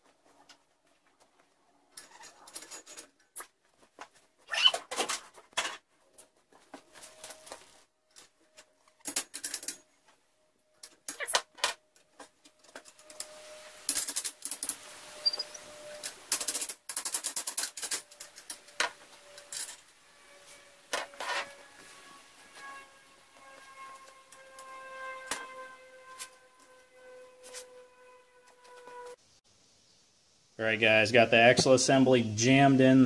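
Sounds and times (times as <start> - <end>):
steel tubes clinking against metal frame: 2.0 - 3.4.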